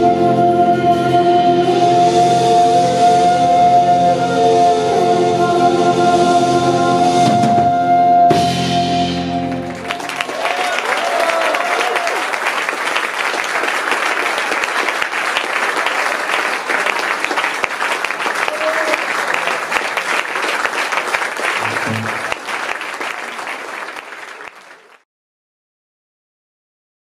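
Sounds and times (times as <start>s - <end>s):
audience applauding: 9.4s - 25.0s.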